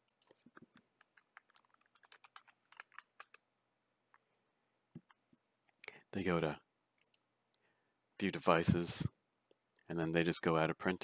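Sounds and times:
faint keyboard typing: 0.0s - 3.5s, 7.0s - 7.3s.

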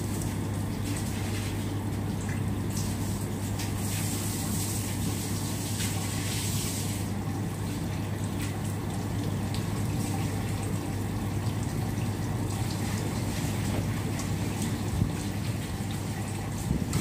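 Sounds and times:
water running from hose: 0.0s - 17.0s.

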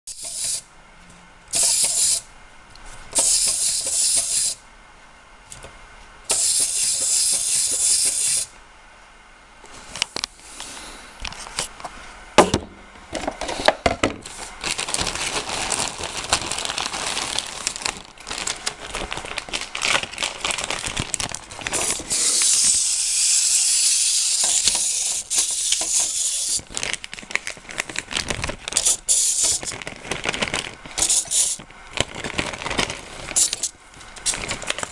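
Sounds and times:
toy gear mechanism whirring: 0.1s - 0.6s, 1.5s - 2.2s, 3.2s - 4.6s, 6.3s - 8.5s, 21.8s - 26.7s, 28.8s - 29.7s, 31.0s - 31.6s.

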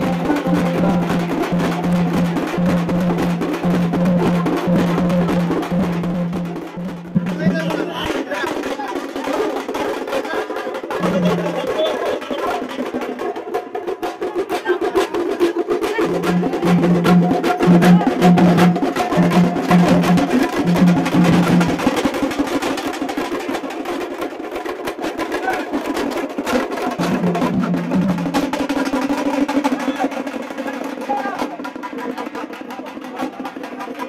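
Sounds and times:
repeated low notes: 0.0s - 7.9s
fast dense drumming: 0.0s - 34.0s.

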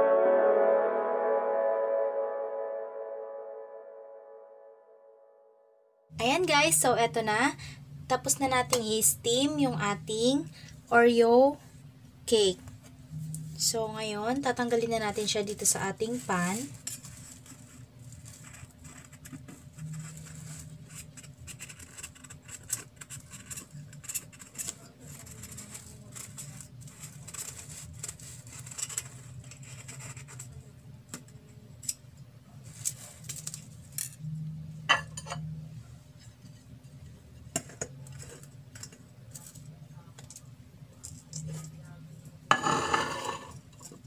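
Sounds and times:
scraping and tapping on metal pan: 42.5s - 43.6s.

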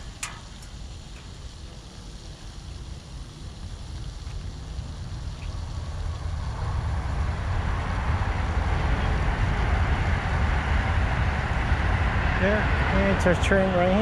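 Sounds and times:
train rumbling and rushing: 6.0s - 14.0s.

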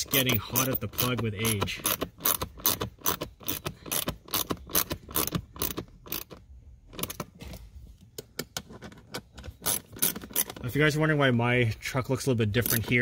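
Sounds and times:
hand ratchet clicking: 0.0s - 7.3s, 8.2s - 10.7s, 12.6s - 13.0s.

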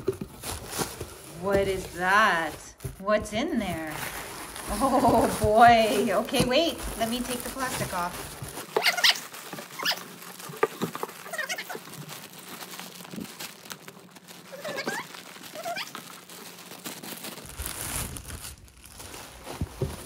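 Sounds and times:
plastic wrapping crinkling: 0.0s - 20.0s
dog whining: 8.8s - 10.1s, 14.5s - 16.0s.

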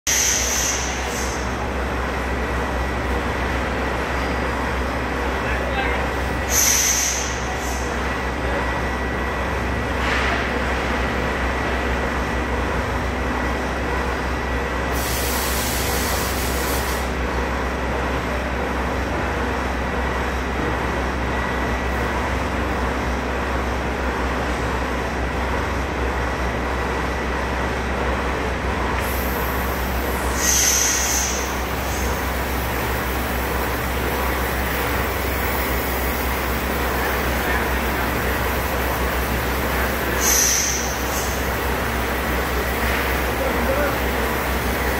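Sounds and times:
hydraulic hiss: 0.1s - 1.5s, 6.4s - 8.0s, 14.9s - 17.1s, 29.0s - 32.4s, 39.7s - 41.6s
hydraulic motor and pump running: 6.0s - 44.9s.

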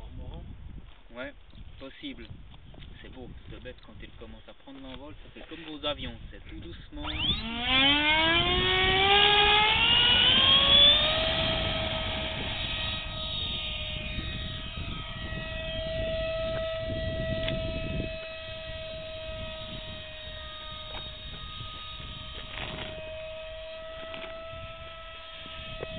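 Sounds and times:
electric fan motor whine: 5.6s - 25.9s.

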